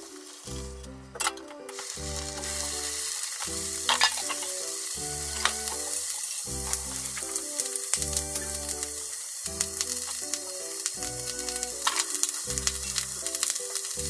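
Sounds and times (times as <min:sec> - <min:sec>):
bacon sizzling in a frying pan: 0:00.0 - 0:00.8, 0:01.7 - 0:14.0
chopsticks clicking against pan: 0:05.4 - 0:14.0.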